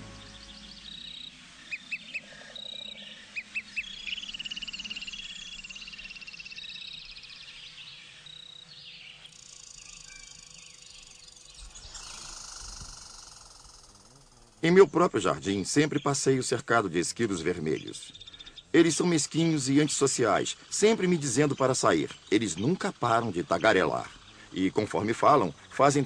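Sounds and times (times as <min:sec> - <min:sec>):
birds whistling and chirping: 0:00.0 - 0:13.2, 0:17.2 - 0:26.0
bird trill: 0:00.0 - 0:16.4, 0:17.1 - 0:26.0
high insect-like buzz: 0:09.3 - 0:14.7.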